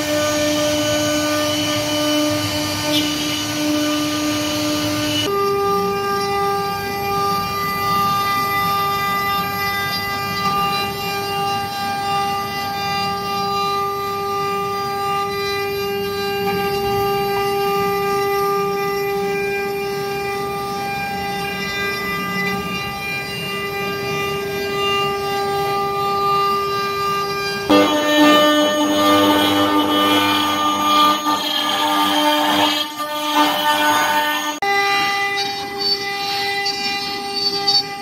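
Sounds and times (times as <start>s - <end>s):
router spindle high whine: 0.0s - 38.0s
rough wood cutting noise: 27.7s - 34.6s.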